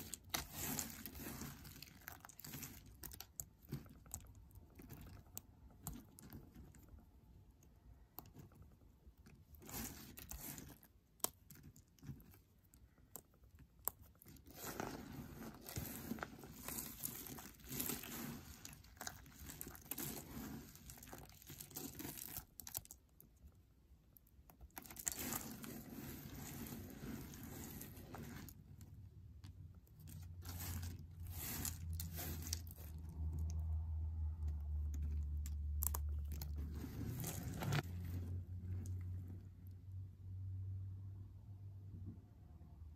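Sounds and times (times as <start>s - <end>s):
soap chips crunching: 0.0s - 6.4s, 13.1s - 23.1s, 24.6s - 28.5s, 29.9s - 33.6s, 34.9s - 37.8s.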